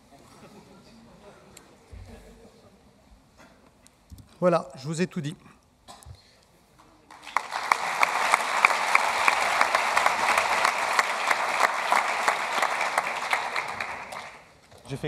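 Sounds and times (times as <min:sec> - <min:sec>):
large audience applauding: 0:07.1 - 0:14.6.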